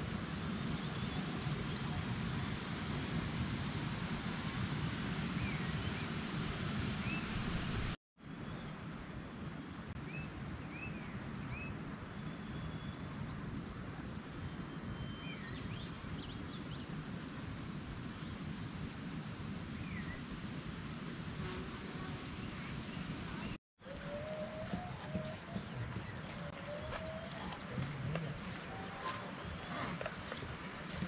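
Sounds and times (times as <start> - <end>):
wind on microphone: 0.0 - 8.0, 8.9 - 31.0
birds chirping: 21.5 - 31.0.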